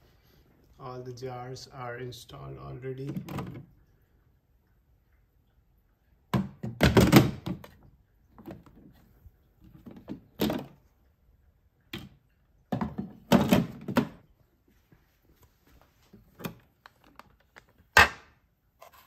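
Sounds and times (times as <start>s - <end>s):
plastic containers clunking: 3.0s - 3.7s, 6.3s - 10.9s, 12.0s - 14.3s.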